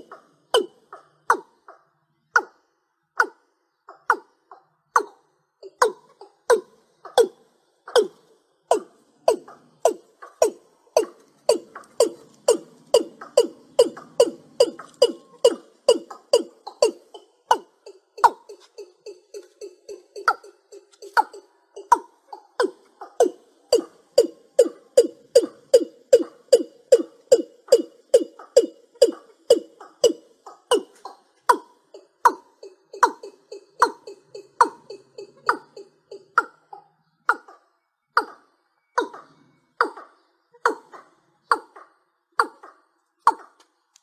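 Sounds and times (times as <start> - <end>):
bird calling low falling notes: 5.6 - 40.3.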